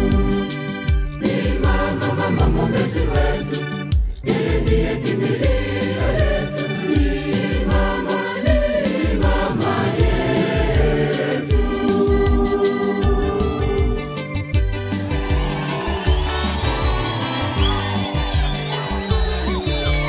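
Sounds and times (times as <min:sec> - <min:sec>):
youth choir singing a hymn: 0:00.0 - 0:00.5, 0:01.2 - 0:14.2
steady low beat: 0:00.0 - 0:14.8.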